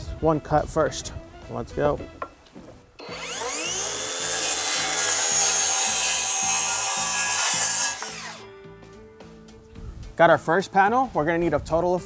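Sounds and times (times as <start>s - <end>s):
circular saw cutting plywood: 3.0s - 8.4s.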